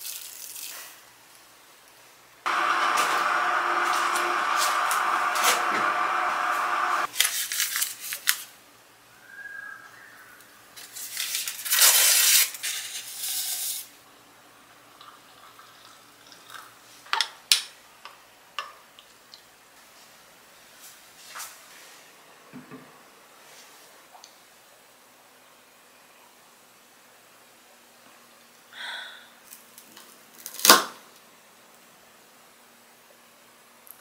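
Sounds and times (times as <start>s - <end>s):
paper packet tearing: 7.1s - 8.5s, 10.9s - 13.0s.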